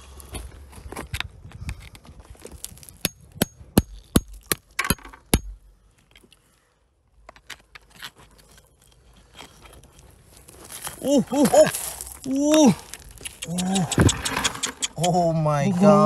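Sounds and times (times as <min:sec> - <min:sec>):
hand tool striking rock: 0:02.8 - 0:05.6.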